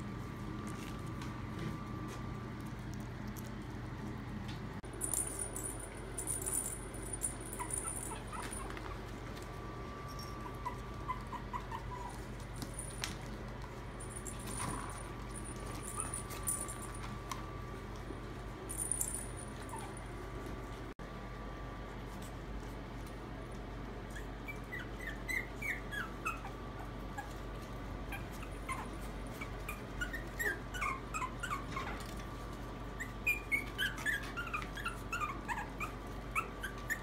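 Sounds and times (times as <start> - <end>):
bell toys jingling: 5.0 - 8.7, 14.0 - 17.0, 18.7 - 19.9
puppy squeaks: 7.6 - 9.0, 10.2 - 12.3, 24.1 - 26.6, 28.1 - 32.0, 33.0 - 37.0.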